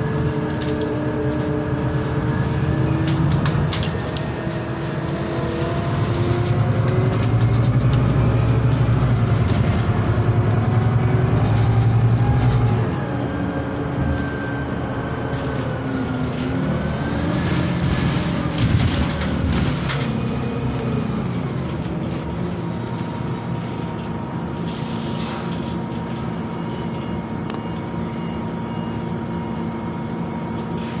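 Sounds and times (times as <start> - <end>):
bus engine hum with whine: 0.0 - 31.0
interior rattles and knocks: 5.6 - 10.4, 17.6 - 20.3.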